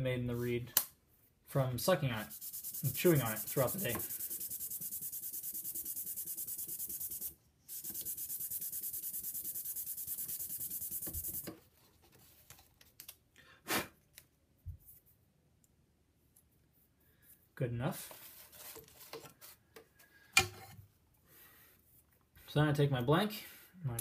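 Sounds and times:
reed rasping on sandpaper: 0:02.2 - 0:11.5
faint handling sounds: 0:11.4 - 0:13.4, 0:14.0 - 0:23.1.

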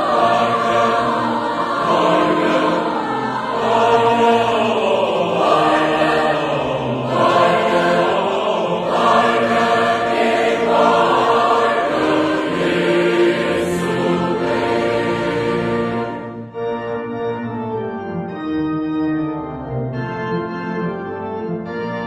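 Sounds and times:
choir singing a hymn: 0:00.0 - 0:16.6.

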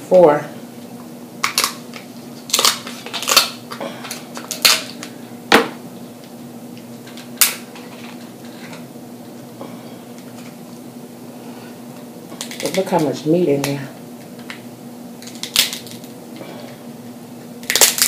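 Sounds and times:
faint steady hum: 0:00.0 - 0:18.0
crab shell cracking: 0:01.4 - 0:05.0, 0:15.2 - 0:16.1, 0:17.6 - 0:18.0.

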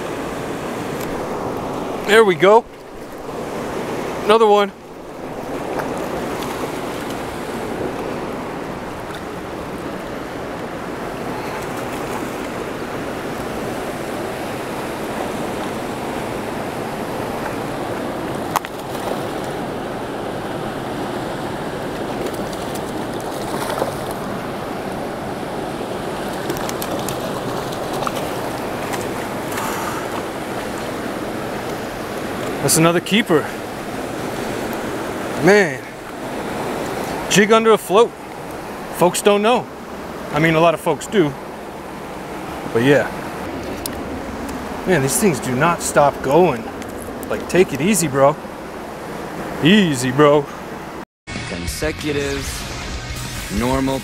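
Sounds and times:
river rushing over rocks: 0:00.0 - 0:37.4.

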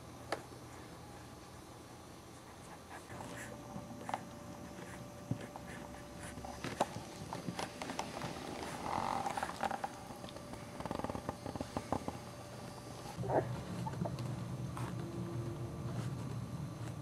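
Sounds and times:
puppy grunting and snuffling: 0:13.1 - 0:14.2.

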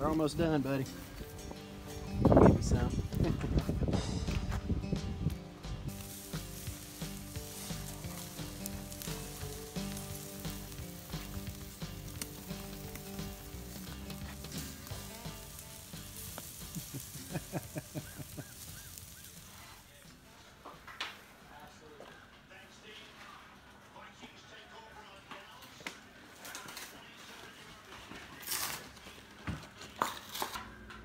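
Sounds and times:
background music with held chords: 0:00.0 - 0:18.4
steaks sizzling on a grill: 0:05.8 - 0:20.0.

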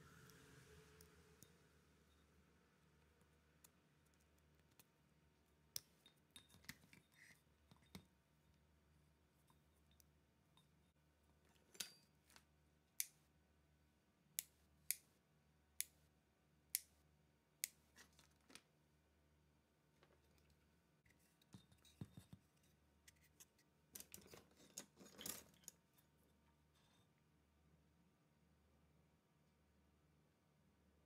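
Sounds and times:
rustling and scraping handling: 0:19.9 - 0:27.2.

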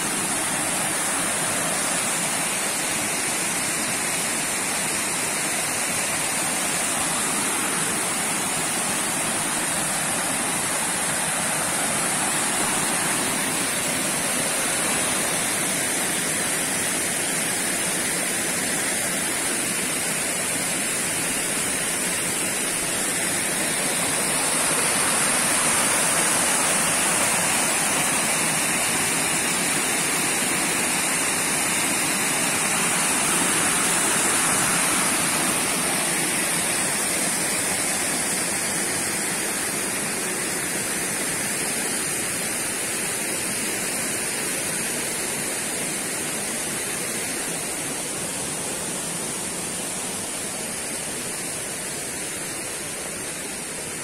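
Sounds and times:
waterfall rushing over rocks: 0:00.0 - 0:54.0.

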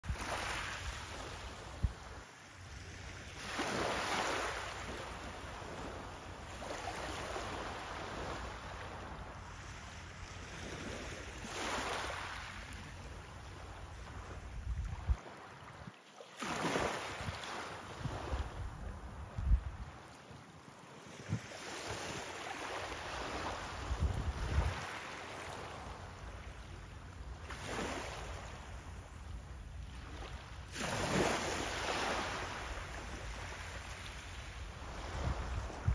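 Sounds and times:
wind rumble on microphone: 0:00.1 - 0:02.9, 0:13.0 - 0:15.9, 0:17.1 - 0:20.2, 0:23.0 - 0:26.1, 0:34.4 - 0:35.9
waves lapping on pebble beach: 0:00.1 - 0:18.6, 0:21.0 - 0:26.7, 0:27.4 - 0:29.2, 0:29.9 - 0:35.9.

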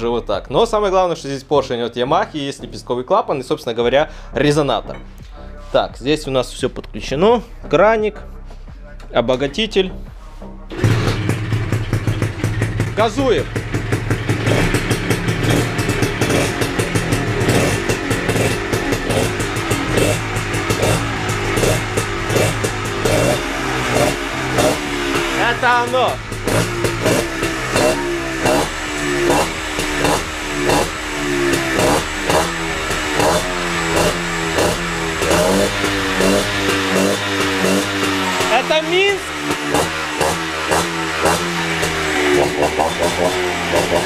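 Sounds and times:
two-stroke motorcycle engine revving: 0:10.7 - 0:44.0.

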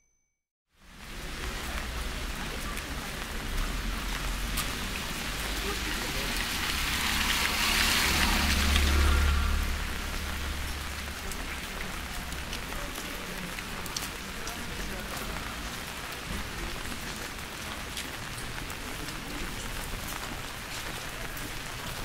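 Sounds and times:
steady rain falling: 0:00.8 - 0:22.0
low rumble: 0:06.4 - 0:12.4.

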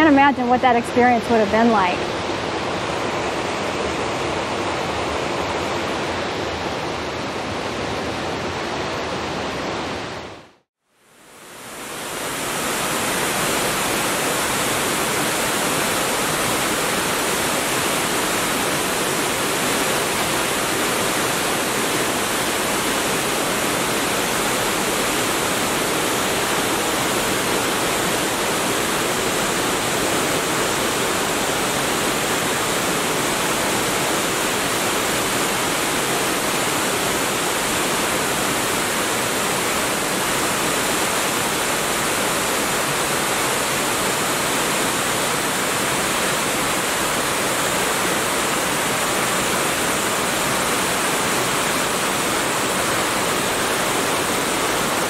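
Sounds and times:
water rushing over rocks: 0:11.3 - 0:55.0.

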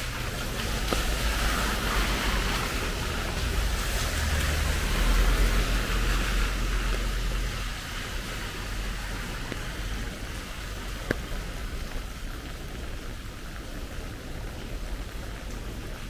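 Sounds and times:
car driving past on wet street: 0:00.0 - 0:11.8
rain hiss on wet pavement: 0:00.0 - 0:16.0.

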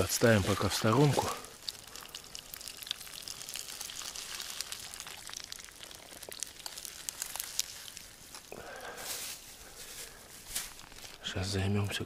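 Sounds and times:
campfire crackling and sizzling: 0:00.0 - 0:12.0
dense rustling noise: 0:07.4 - 0:11.4.

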